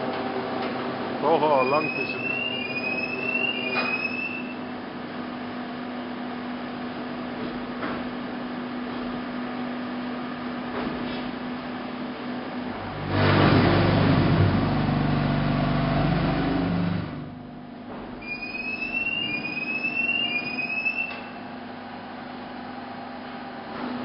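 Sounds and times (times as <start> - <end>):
machinery hum: 0.0 - 24.0
short rising squeals: 1.5 - 4.6, 18.2 - 21.6
loud motor running: 12.7 - 17.6.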